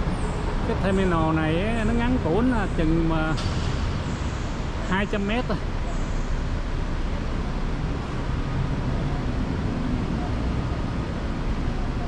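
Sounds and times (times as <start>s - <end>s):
low rumbling background noise: 0.0s - 12.0s
faint distant voices: 4.8s - 12.0s.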